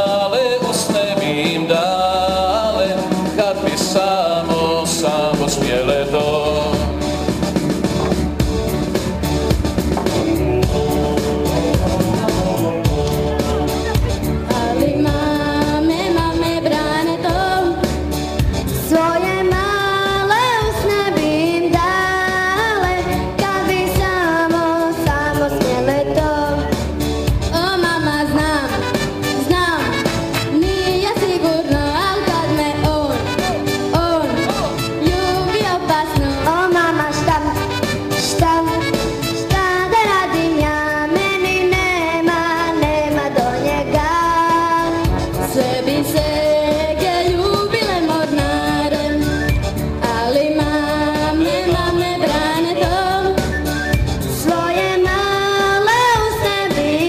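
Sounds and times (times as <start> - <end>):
girls singing a pop song: 0.0 - 8.3, 10.0 - 57.0
backing music: 0.0 - 57.0.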